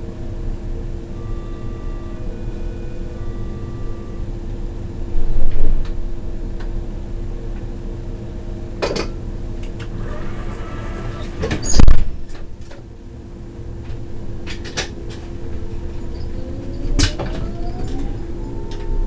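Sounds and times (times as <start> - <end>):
electric train humming: 0.0 - 19.0
short tone: 1.2 - 4.3.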